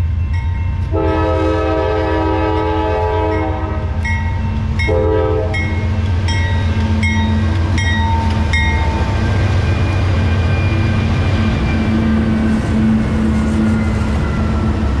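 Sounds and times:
locomotive bell ringing: 0.0s - 1.2s, 3.2s - 15.0s
low rumble of train engines: 0.0s - 15.0s
train horn blast: 0.9s - 4.0s, 4.9s - 5.8s.

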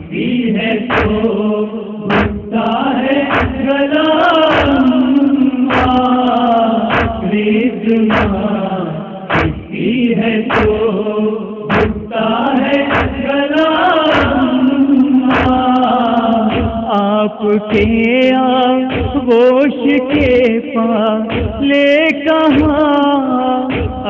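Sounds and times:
people chanting together: 0.0s - 24.0s
chest-beating strikes: 0.9s - 1.2s, 2.1s - 2.6s, 3.3s - 3.7s, 6.9s - 7.3s, 8.1s - 8.4s, 9.3s - 9.8s, 11.7s - 12.1s, 12.9s - 13.2s.

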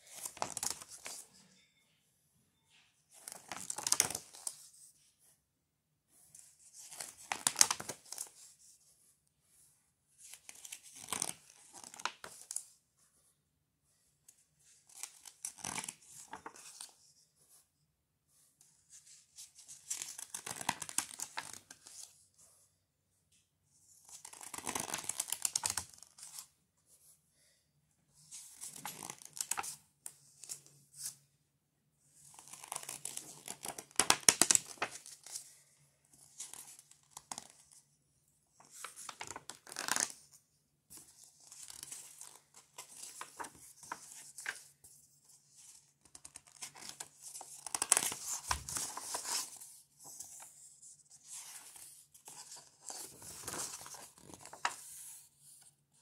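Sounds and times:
book pages rustling: 0.1s - 1.3s, 3.0s - 5.3s, 6.1s - 9.1s, 10.2s - 13.1s, 14.3s - 17.6s, 18.3s - 22.6s, 28.2s - 31.2s, 32.2s - 37.8s, 38.6s - 55.7s.

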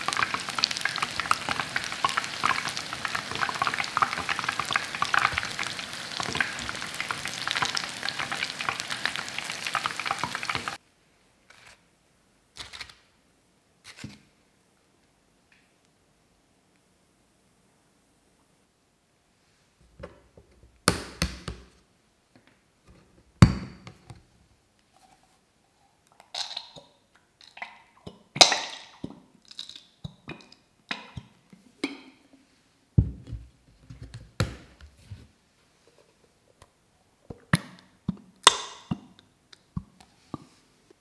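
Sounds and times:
plastic bottles knocked on counter: 33.0s - 34.7s.

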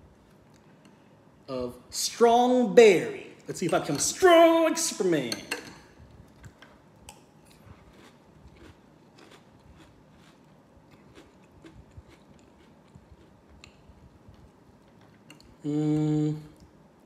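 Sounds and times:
person chewing cereal: 6.3s - 15.6s.

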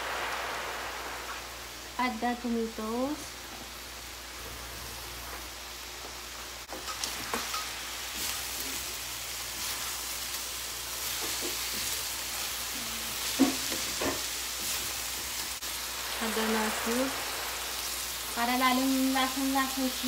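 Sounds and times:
food sizzling in a wok: 0.0s - 20.0s
spatula knocking and scraping pan: 13.3s - 14.8s.

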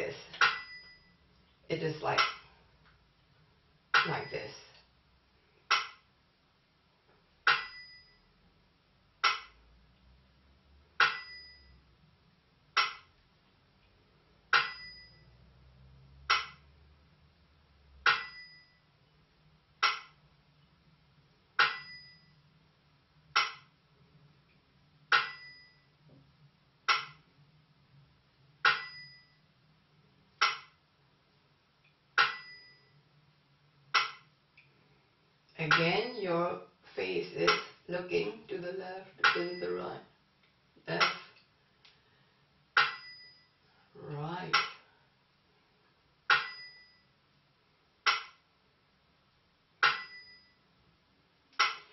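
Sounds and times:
small bell-cymbals ringing: 0.4s - 1.3s, 7.5s - 8.4s, 11.0s - 11.9s, 14.6s - 15.6s, 18.1s - 18.9s, 21.6s - 22.4s, 25.2s - 26.0s, 28.7s - 29.4s, 32.2s - 33.0s, 42.8s - 43.6s, 46.3s - 47.2s, 49.8s - 50.7s.

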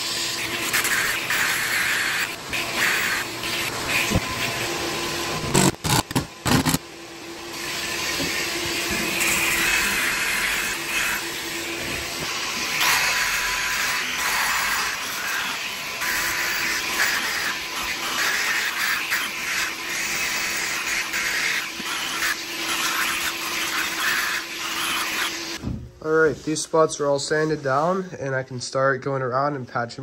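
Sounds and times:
electric sander on fiberglass: 0.0s - 25.6s
shop vacuum hum: 0.0s - 28.6s.

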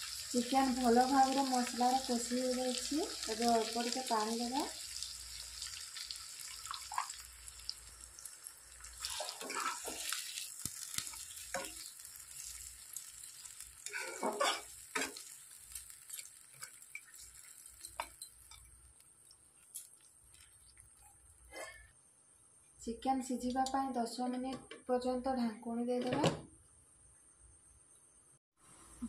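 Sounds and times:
faint sizzle of simmering gravy: 0.0s - 21.6s
spatula scraping a pan: 9.0s - 12.7s, 13.4s - 21.9s.

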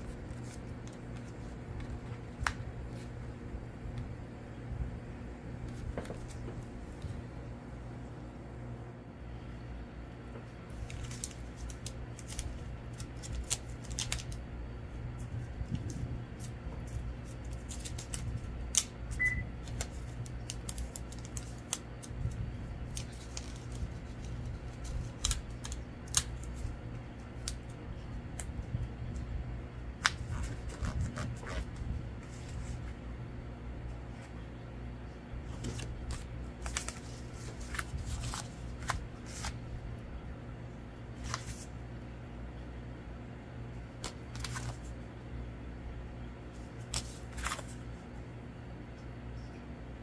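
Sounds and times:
paper rustling: 0.0s - 3.2s, 5.6s - 6.7s, 10.3s - 14.4s, 15.2s - 18.9s, 19.6s - 27.7s, 30.0s - 33.0s, 35.4s - 39.7s, 41.1s - 41.7s, 44.0s - 45.0s, 46.6s - 47.8s
steady low hum: 0.0s - 50.0s
paper clicks and snips: 17.2s - 26.7s.

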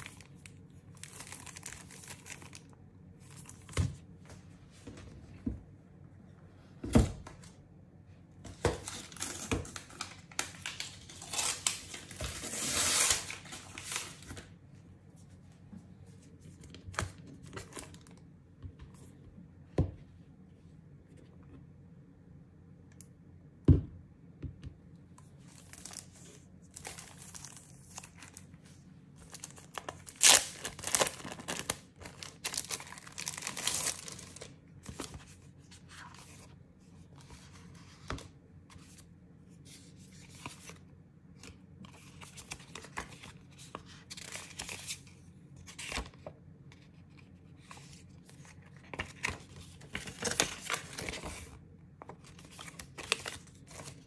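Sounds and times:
plastic film crinkling and tearing: 0.0s - 2.7s, 8.9s - 14.5s, 25.5s - 28.4s, 29.2s - 34.6s
paper rustling: 41.9s - 54.0s.

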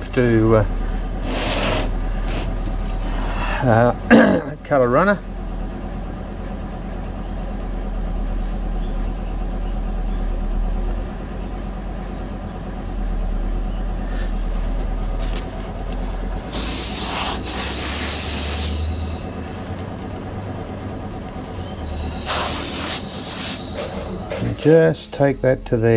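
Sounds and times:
mechanical hum: 0.0s - 25.9s
compressed air blow gun hissing: 1.2s - 2.6s, 16.5s - 19.6s, 21.8s - 24.4s
hand tool scraping sand: 1.2s - 2.6s, 16.5s - 19.3s.

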